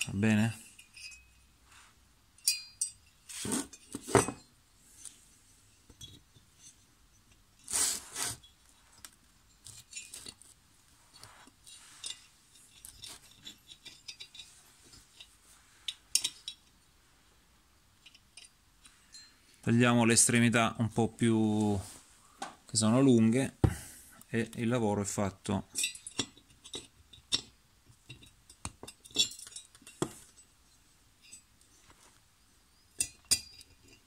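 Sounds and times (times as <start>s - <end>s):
small metallic clinks and taps: 0.6s - 1.5s, 2.4s - 7.4s, 11.6s - 16.8s, 18.0s - 19.7s, 25.7s - 31.9s, 32.8s - 34.0s.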